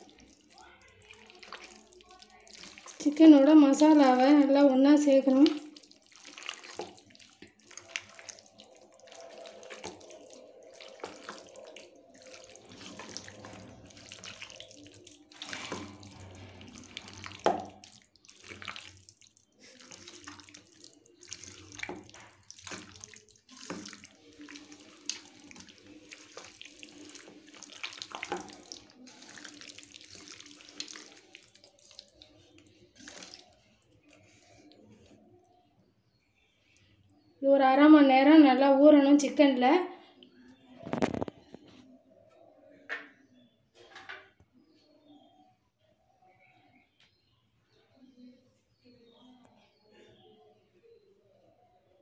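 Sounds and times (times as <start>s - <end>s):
hand squishing wet batter: 0.0s - 37.3s.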